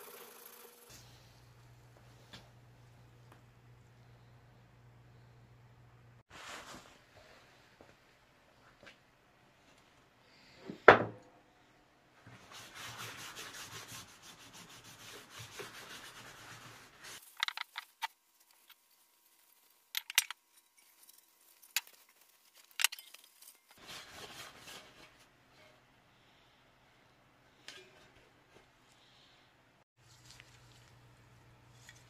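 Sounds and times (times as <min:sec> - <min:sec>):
paper towel rubbing steel: 0:12.4 - 0:17.2.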